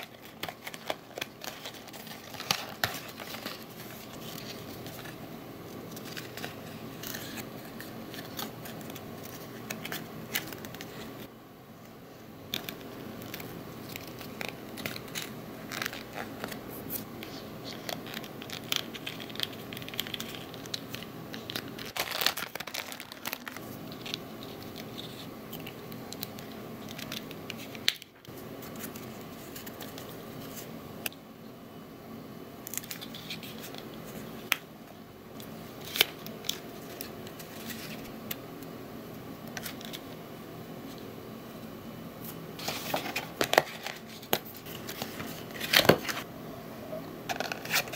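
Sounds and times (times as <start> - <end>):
cardboard crinkling and rustling: 0.0 - 5.2, 12.6 - 25.7, 42.6 - 46.2.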